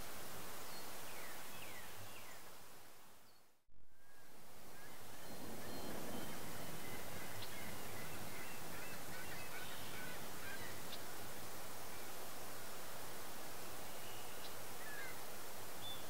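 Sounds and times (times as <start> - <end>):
faint bird chirps: 13.8 - 15.2.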